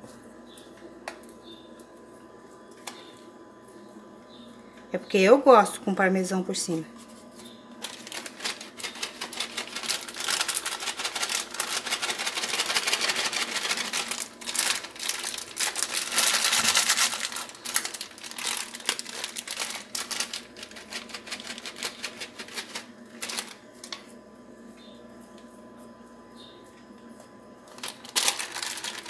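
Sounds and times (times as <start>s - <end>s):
plastic packet crinkling: 7.8s - 24.1s, 27.7s - 29.0s.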